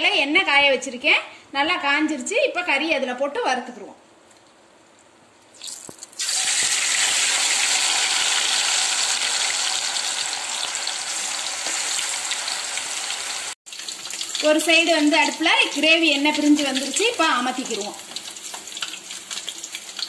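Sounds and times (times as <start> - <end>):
chicken deep-frying in hot oil: 5.5 - 20.0.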